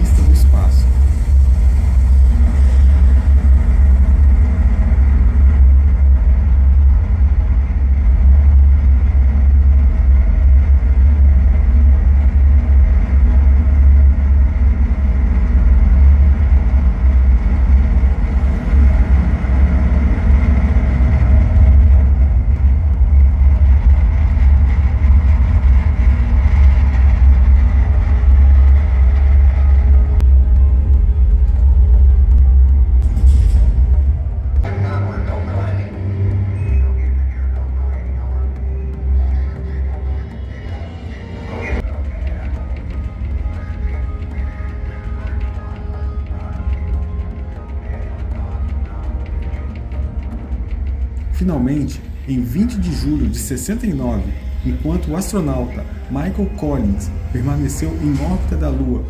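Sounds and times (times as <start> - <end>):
rushing noise: 0.0 - 36.9.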